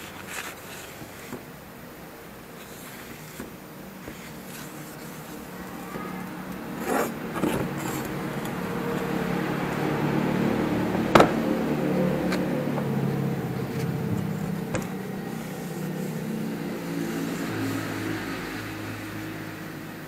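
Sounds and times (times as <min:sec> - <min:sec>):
steady mechanical hum: 0:00.0 - 0:20.0.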